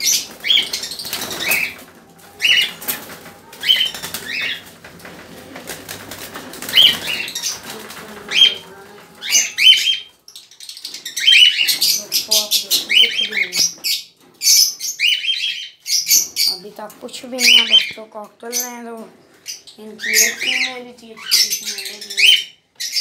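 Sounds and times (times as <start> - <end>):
cockatiels screeching: 0.0 - 4.7, 6.6 - 16.6
wings flapping: 0.0 - 10.0.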